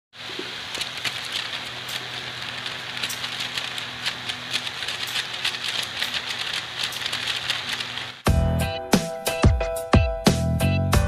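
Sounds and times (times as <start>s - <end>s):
fan motor hum: 0.2s - 8.3s
paper strip fluttering rattle: 0.6s - 8.2s.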